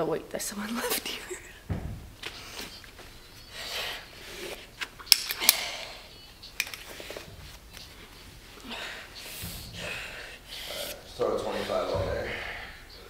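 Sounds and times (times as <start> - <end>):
metallic buckle clicks: 5.1 - 5.9, 6.6 - 6.9.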